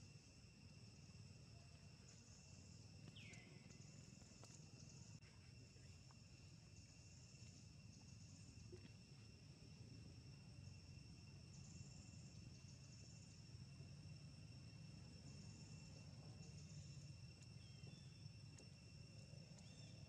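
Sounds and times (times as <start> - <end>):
high-pitched insect drones: 0.0 - 20.0
insect chirping: 0.0 - 20.0.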